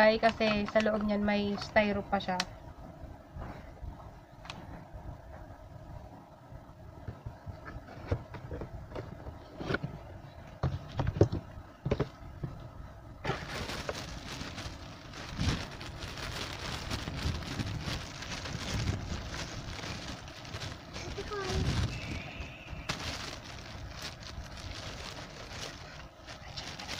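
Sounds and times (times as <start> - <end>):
bubble wrap crinkling: 13.2 - 26.9.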